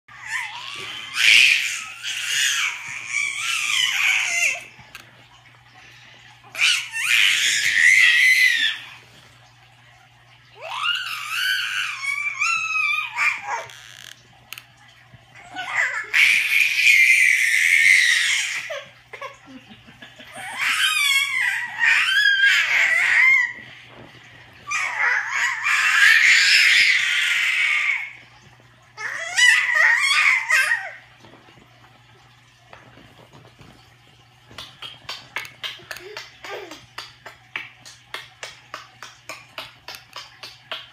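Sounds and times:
baby squealing: 0:10.6 - 0:13.9, 0:20.4 - 0:23.6, 0:24.7 - 0:28.1.

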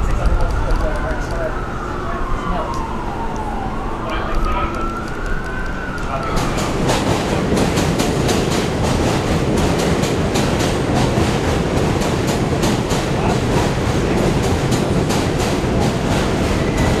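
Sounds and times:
subway train rumbling on track: 0:00.0 - 0:17.0
wheels clacking over rail joints: 0:06.2 - 0:17.0.

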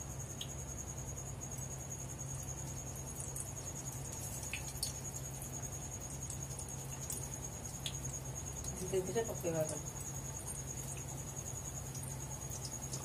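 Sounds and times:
frying in hot oil: 0:01.4 - 0:13.0.

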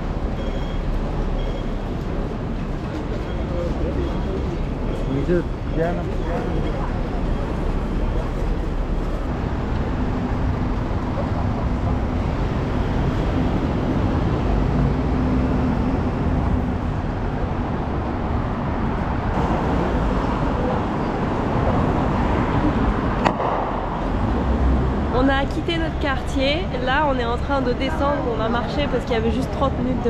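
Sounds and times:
traffic rumble: 0:00.0 - 0:30.0.

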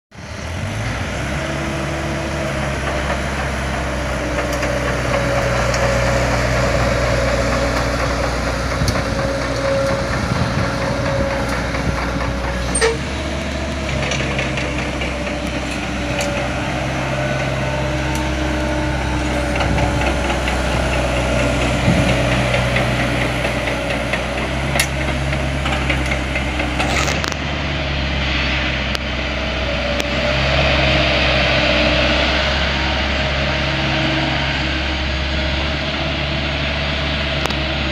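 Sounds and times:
diesel excavator engine running: 0:00.1 - 0:37.9.

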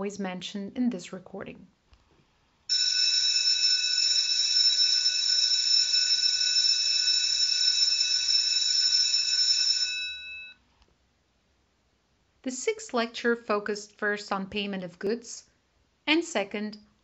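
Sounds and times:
electric bell ringing: 0:02.7 - 0:10.6.

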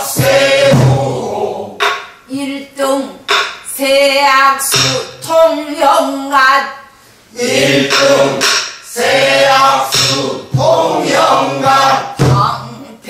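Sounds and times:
group singing: 0:00.0 - 0:02.0, 0:07.3 - 0:12.7
woman singing: 0:02.3 - 0:06.7, 0:12.2 - 0:13.0.

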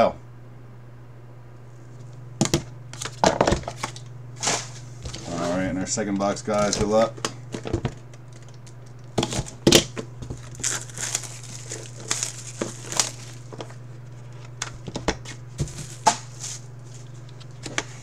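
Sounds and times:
plastic shrink-wrap crinkling: 0:10.2 - 0:14.8, 0:15.6 - 0:17.6.

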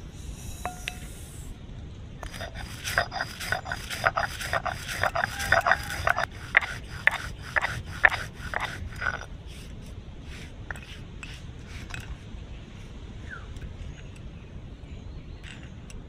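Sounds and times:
hand brushing ground spice: 0:02.2 - 0:13.0
stone roller grinding spices: 0:02.2 - 0:14.2.

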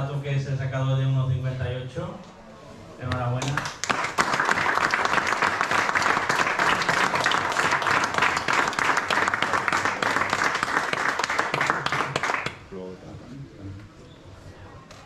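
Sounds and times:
audience clapping: 0:03.1 - 0:12.7.

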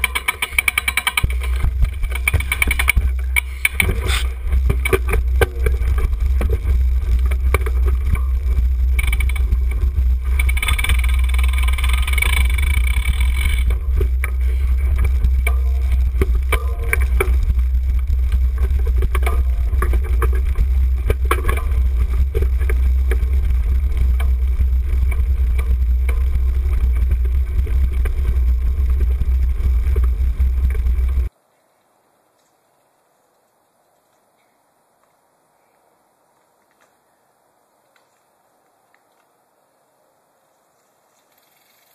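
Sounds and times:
camera rattles and knocks: 0:00.0 - 0:31.3
low rumble of bike riding: 0:00.0 - 0:41.9.

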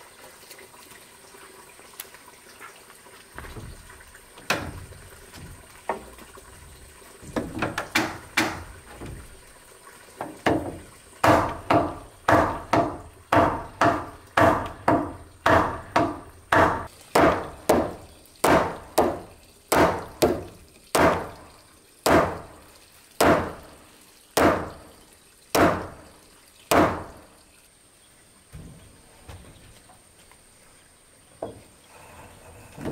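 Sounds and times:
hammer striking wood: 0:07.3 - 0:09.2, 0:10.2 - 0:21.4, 0:22.1 - 0:22.5, 0:23.2 - 0:23.7, 0:24.4 - 0:24.8, 0:25.6 - 0:26.0, 0:26.7 - 0:27.2.

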